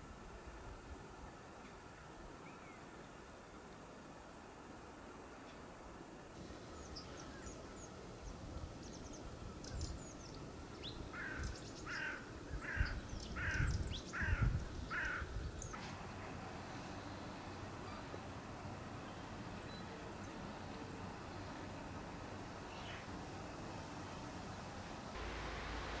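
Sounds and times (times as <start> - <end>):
small birds chirping: 6.4 - 15.8, 22.6 - 23.2
crow cawing: 11.2 - 15.3
wind on microphone: 12.5 - 15.7.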